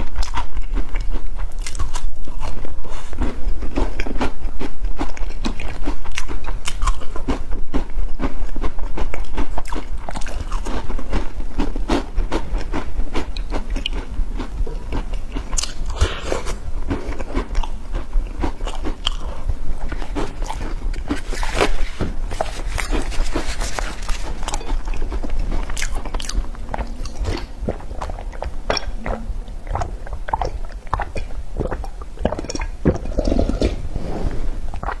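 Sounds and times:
crunching fried food: 0.0s - 33.4s
drinking from a bowl: 19.9s - 35.0s.

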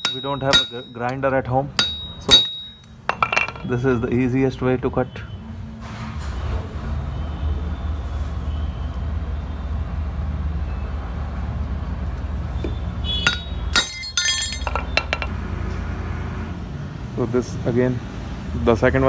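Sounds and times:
metal tools clinking on concrete: 0.0s - 4.1s, 13.1s - 15.3s.

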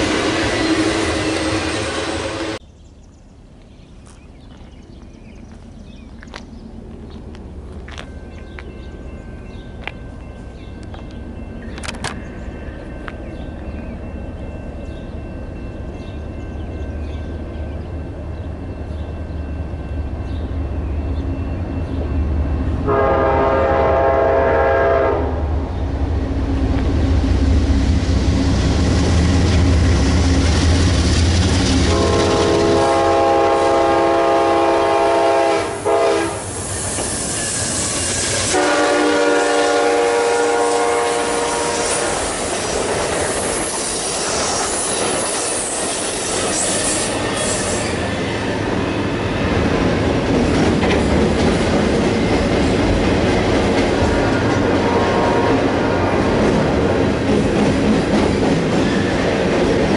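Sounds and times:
wheel squeal on rails: 0.0s - 2.6s, 36.4s - 38.5s, 41.7s - 48.6s
locomotive air horn blasts: 22.8s - 25.4s, 31.9s - 36.5s, 38.5s - 42.3s, 54.6s - 55.8s.

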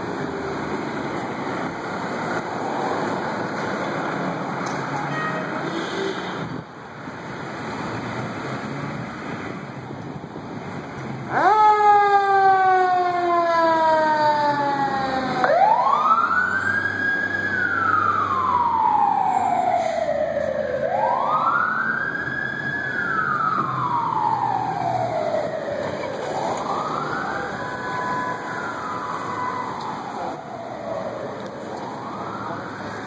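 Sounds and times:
fire engine siren wailing: 10.7s - 33.0s.

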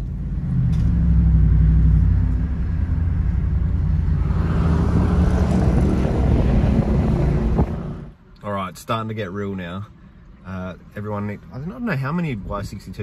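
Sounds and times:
engine and road drone: 0.0s - 8.4s.

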